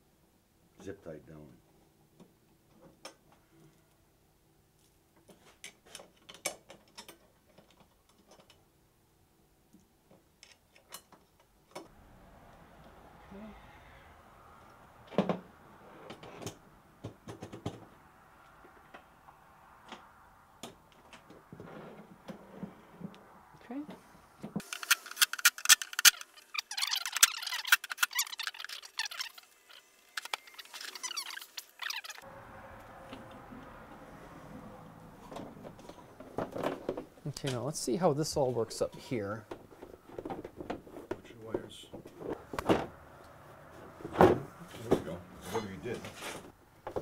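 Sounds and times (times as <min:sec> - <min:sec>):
squeaky chirping: 0:24.8 - 0:32.3.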